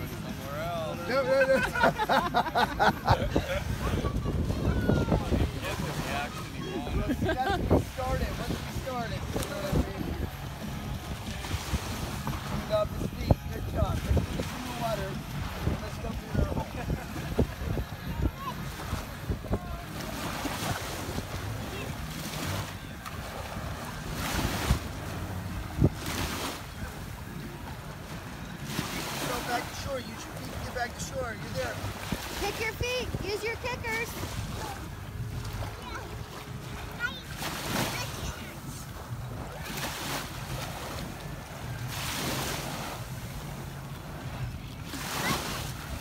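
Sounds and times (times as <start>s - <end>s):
small waves lapping on shore: 0.0s - 46.0s
wind on microphone: 3.1s - 27.3s.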